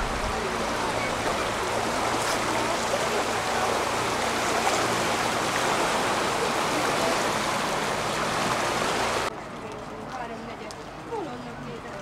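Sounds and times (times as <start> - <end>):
river rushing under a bridge: 0.0 - 9.3.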